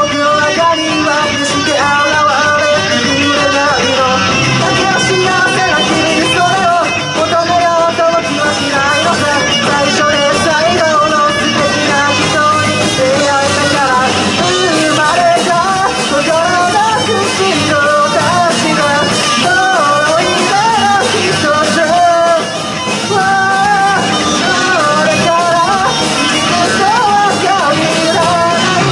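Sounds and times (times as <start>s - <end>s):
lead vocal singing: 0.0s - 28.9s
live rock band playing: 0.0s - 28.9s.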